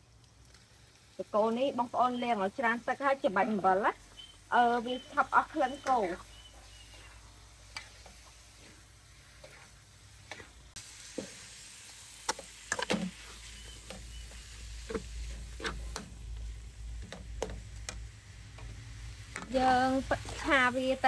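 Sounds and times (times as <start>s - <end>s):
meat sizzling: 0.0s - 21.0s
metal spatula scraping a wok: 5.8s - 11.6s, 12.3s - 16.0s.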